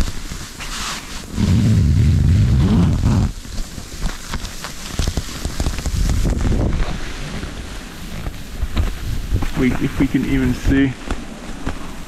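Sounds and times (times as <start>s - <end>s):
wind buffeting microphone: 1.2s - 4.1s, 5.0s - 11.0s.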